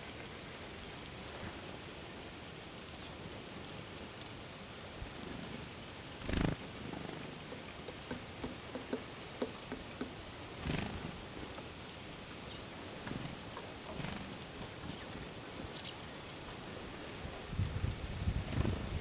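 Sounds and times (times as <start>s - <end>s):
steady soft hiss: 0.0s - 19.0s
bird wings fluttering: 6.2s - 8.6s, 10.5s - 11.3s, 13.0s - 15.1s, 17.5s - 19.0s.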